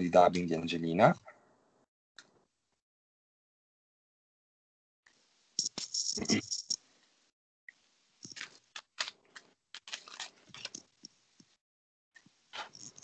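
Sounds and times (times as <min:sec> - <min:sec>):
hands rustling materials: 0:08.2 - 0:11.6.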